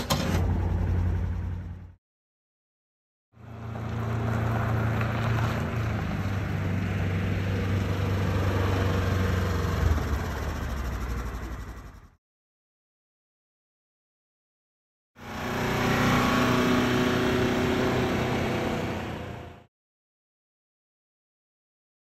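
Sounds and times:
engine running: 0:00.0 - 0:02.0, 0:03.4 - 0:12.2, 0:15.2 - 0:19.7.

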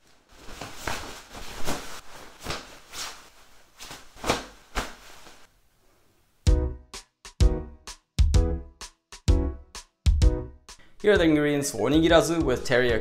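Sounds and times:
cloth rustling: 0:00.0 - 0:06.2.

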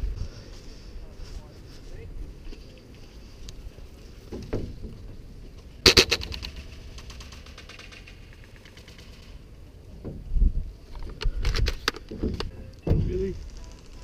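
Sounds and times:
airsoft rifle shot: 0:05.8 - 0:08.2
rattle of clicks: 0:05.9 - 0:09.4.

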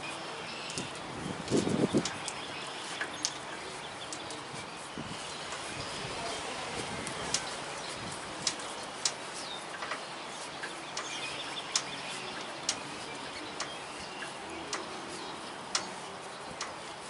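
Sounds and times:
light clicks of tire bead work: 0:00.0 - 0:17.0
outdoor background noise: 0:00.0 - 0:17.0
faint bird chirps: 0:07.2 - 0:17.0.

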